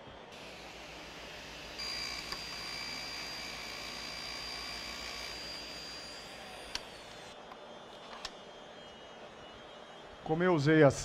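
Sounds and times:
table saw cutting wood: 0.4s - 7.4s.

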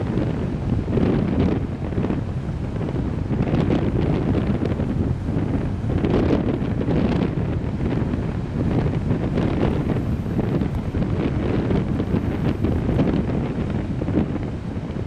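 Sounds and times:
wind buffeting microphone: 0.0s - 15.0s
sea waves breaking: 1.8s - 14.9s.

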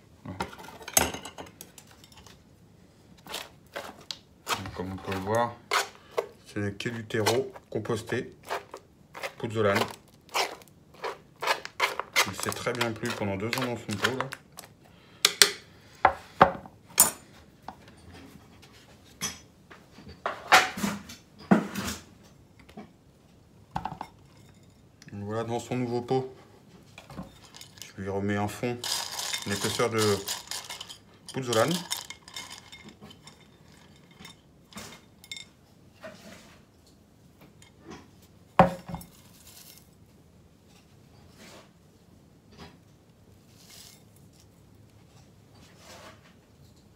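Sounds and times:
metal blade scraping pot: 3.2s - 6.3s, 7.1s - 14.3s, 28.8s - 35.4s.

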